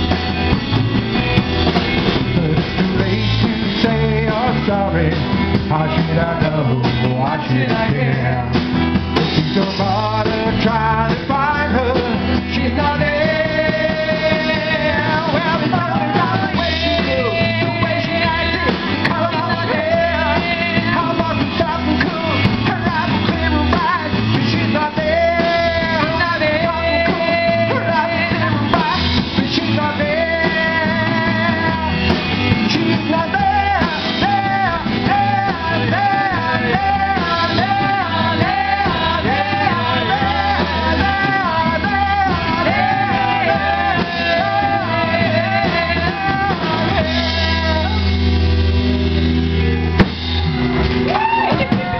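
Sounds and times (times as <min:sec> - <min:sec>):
live rock band playing: 0:00.0 - 0:51.9
woman singing lead: 0:09.5 - 0:48.3, 0:51.1 - 0:51.9.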